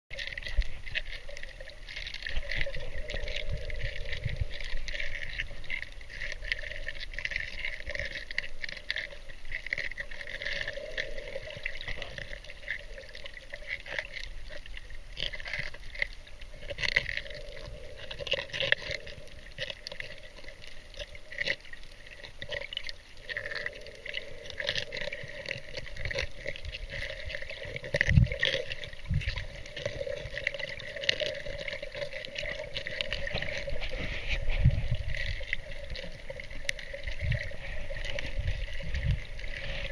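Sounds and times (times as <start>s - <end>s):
fine clicks and crackles: 0.1s - 39.9s
muffled underwater water noise: 0.1s - 39.9s.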